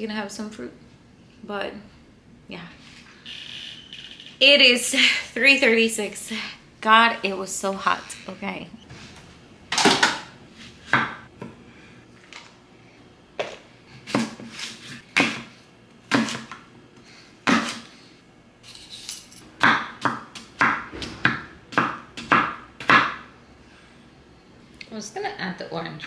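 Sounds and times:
knife chopping on wooden board: 0:15.1 - 0:15.5, 0:16.1 - 0:16.6, 0:17.4 - 0:17.8, 0:19.6 - 0:23.2.

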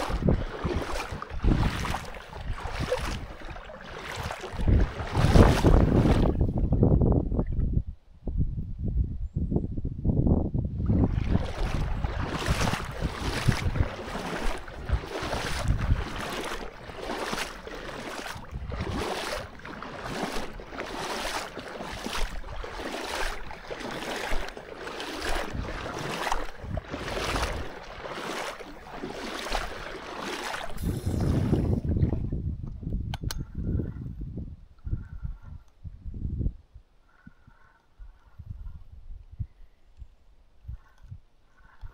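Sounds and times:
water splashing and sloshing: 0:00.0 - 0:07.8, 0:10.8 - 0:33.3.

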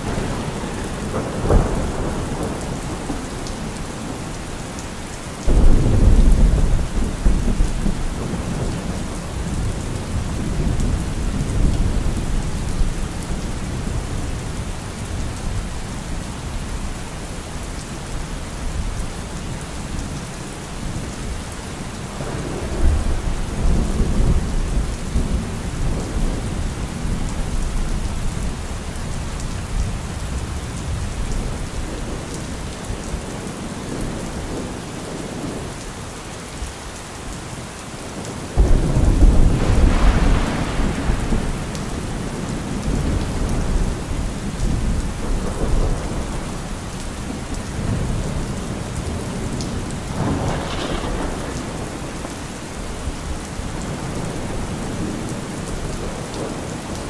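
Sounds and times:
rolling thunder: 0:00.0 - 0:04.4, 0:05.4 - 0:15.6, 0:38.6 - 0:52.4
steady rain: 0:00.0 - 0:57.0
loud thunderclap: 0:05.5 - 0:08.9, 0:38.6 - 0:46.5, 0:50.1 - 0:52.1.

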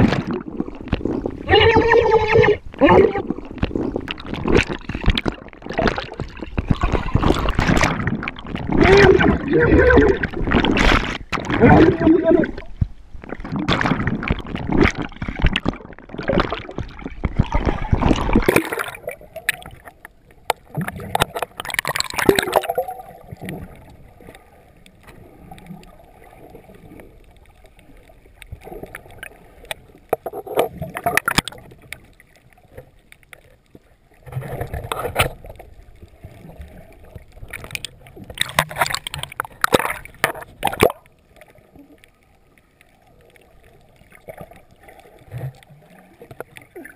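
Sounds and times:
bursts of rushing water: 0:00.0 - 0:19.9
muffled underwater water sloshing: 0:00.0 - 0:46.9.

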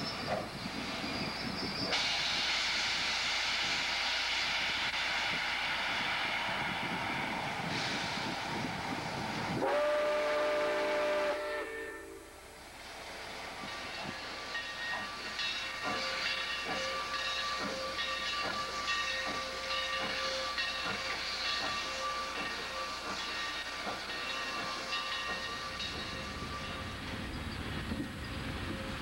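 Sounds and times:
steam hiss: 0:00.0 - 0:29.0
steam locomotive exhaust chuffing: 0:00.0 - 0:29.0
steam whistle: 0:09.6 - 0:12.4.

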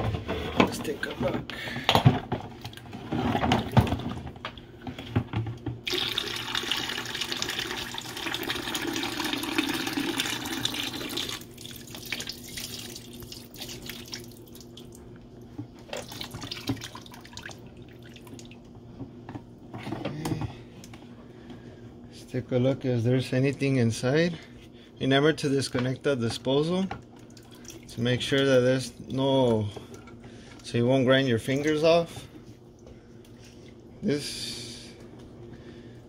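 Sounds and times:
water pouring: 0:05.8 - 0:15.0, 0:15.9 - 0:18.6.

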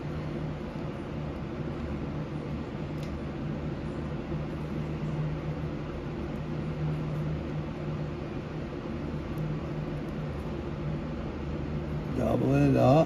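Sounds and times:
machine humming: 0:00.0 - 0:13.0.

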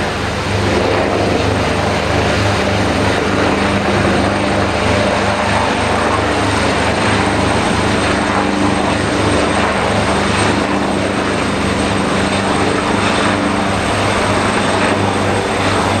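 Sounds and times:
helicopter flying overhead: 0:00.0 - 0:16.0.

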